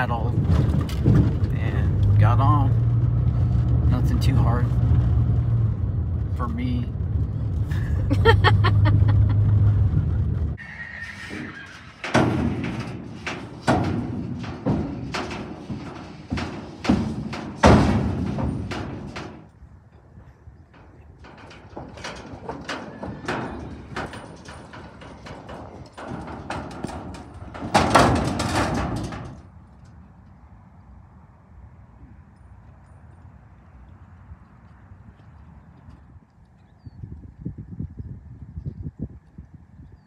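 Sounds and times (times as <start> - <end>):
horse hooves on trailer floor: 0.0 - 30.4.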